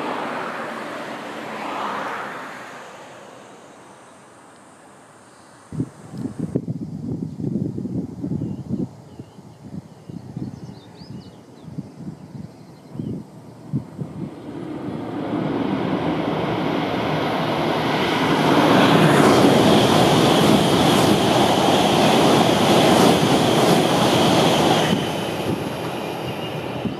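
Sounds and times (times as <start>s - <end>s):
train passing: 0.0s - 6.5s, 12.9s - 26.9s
high train whine: 0.0s - 26.9s.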